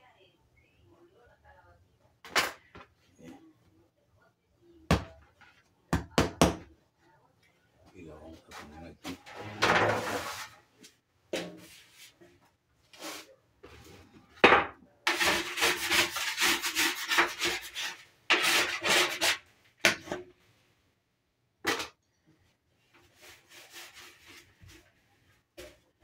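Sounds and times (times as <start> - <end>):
dough rubbing on wooden table: 15.1 - 19.4, 23.1 - 24.8.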